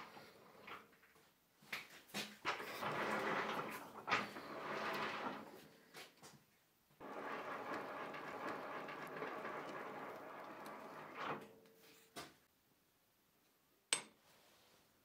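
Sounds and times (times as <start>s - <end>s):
lathe cutter scraping metal: 7.0s - 11.4s.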